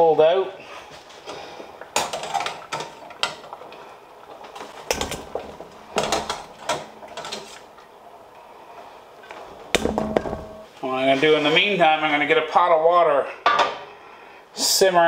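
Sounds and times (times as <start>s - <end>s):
potatoes knocking in steel bowl: 9.8s - 10.6s.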